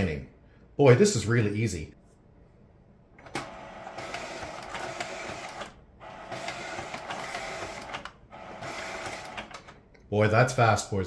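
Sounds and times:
photo scanner running: 3.2 - 9.8.

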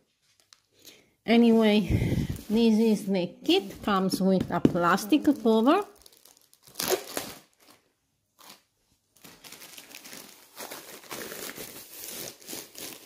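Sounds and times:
plastic cover crinkling: 3.5 - 13.0.

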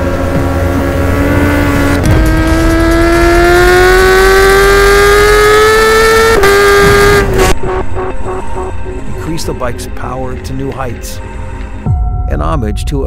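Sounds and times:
motorcycle engine accelerating: 0.0 - 9.0.

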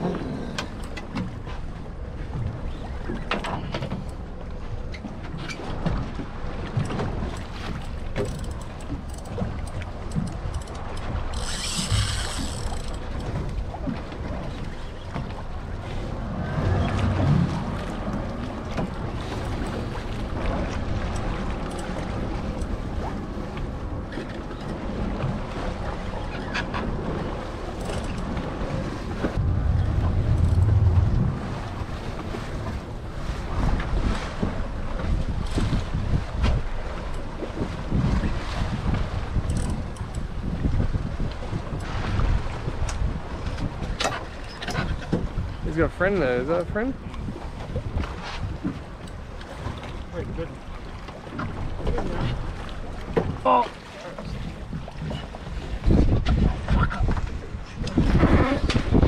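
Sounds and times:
sea water washing against hull: 0.0 - 59.0
wind buffeting microphone: 5.8 - 53.5, 54.2 - 59.0.

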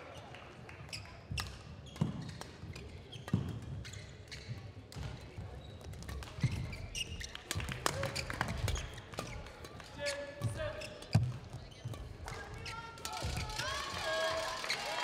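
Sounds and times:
footsteps on indoor court: 0.1 - 14.8
shoe squeaks: 0.9 - 9.4, 10.0 - 13.5.

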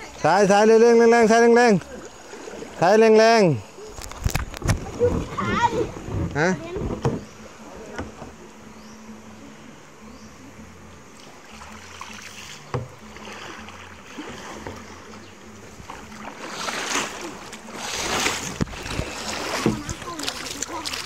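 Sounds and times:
paddle strokes splashing: 1.3 - 8.2, 11.1 - 21.0
paddle knock: 4.3 - 7.3, 15.8 - 21.0
water rushing over rapid: 16.2 - 21.0.

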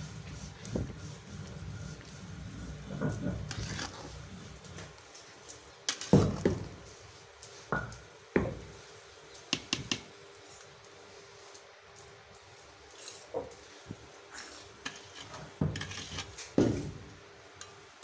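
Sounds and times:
metal spatula scraping a pot: 2.0 - 4.9, 5.9 - 6.2, 14.4 - 16.6.

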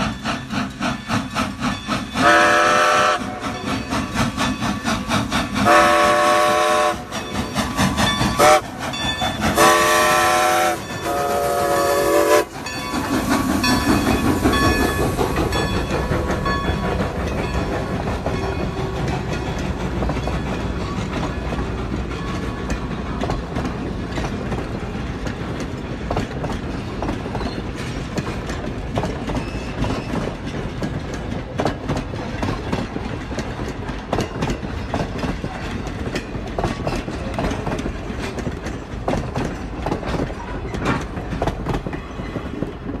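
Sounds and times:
train rumble: 0.0 - 43.0
train wheels clicking over rail joints: 0.0 - 43.0.

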